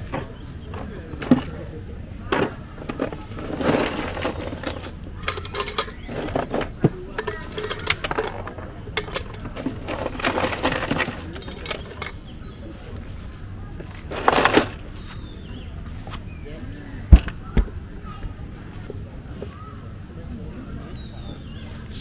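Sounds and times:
metal cookware clinking and clattering: 0:02.4 - 0:12.2, 0:14.1 - 0:14.9.

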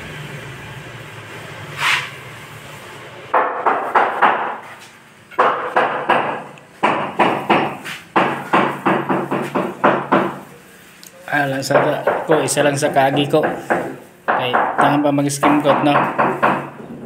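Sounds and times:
short swish: 0:01.7 - 0:02.2.

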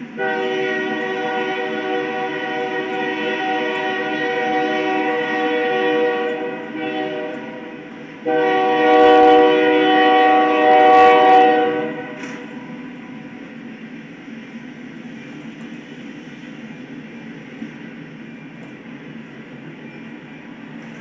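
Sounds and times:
locomotive air horn blasts: 0:00.1 - 0:12.6.

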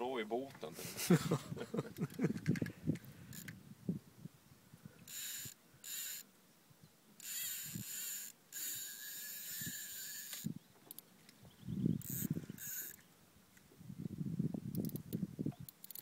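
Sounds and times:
fishing reel drag buzzing: 0:03.0 - 0:03.6, 0:05.0 - 0:06.3, 0:07.2 - 0:11.0, 0:12.0 - 0:13.0, 0:15.7 - 0:16.0.

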